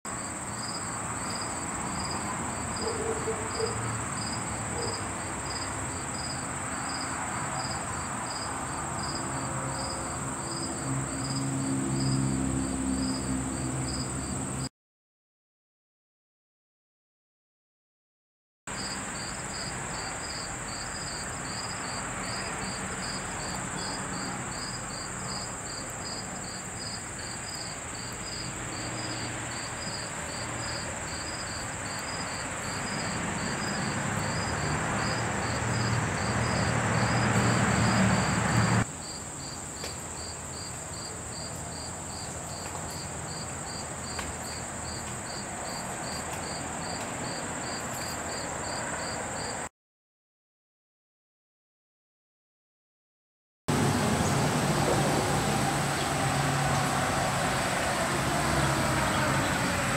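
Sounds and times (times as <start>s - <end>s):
crickets chirping: 0.1s - 14.7s, 18.7s - 49.7s, 53.7s - 59.9s
high insect trill: 0.1s - 14.7s, 18.7s - 49.7s
rushing noise with low hum: 53.7s - 59.9s.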